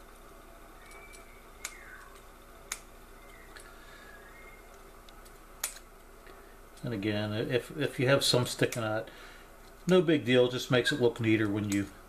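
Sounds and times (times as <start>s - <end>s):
scissors snipping: 5.1s - 5.9s.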